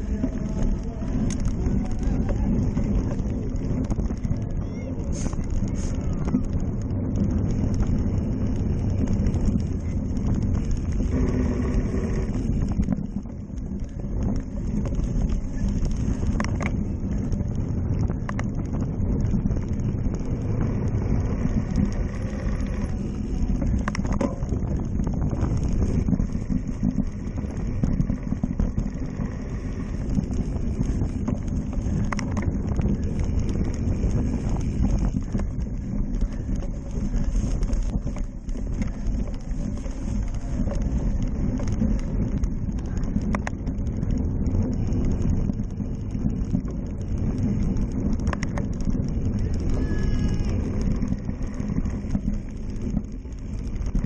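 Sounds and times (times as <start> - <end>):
bike rumbling over bumpy dirt: 0.0 - 54.0
wind on microphone: 0.0 - 54.0.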